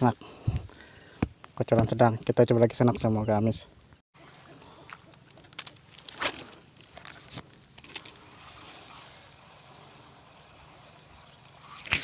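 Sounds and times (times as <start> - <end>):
faint steady rustle: 3.8 - 12.0.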